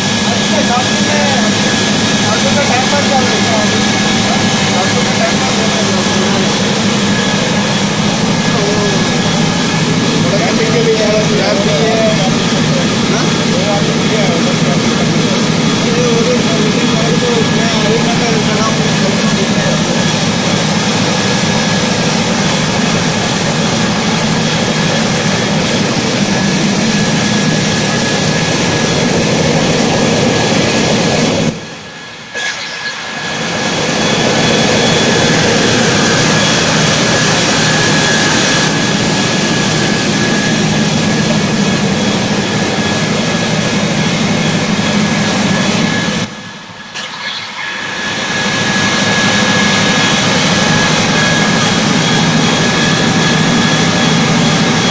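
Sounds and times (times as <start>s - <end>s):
machine running with hum and whine: 0.0s - 54.9s.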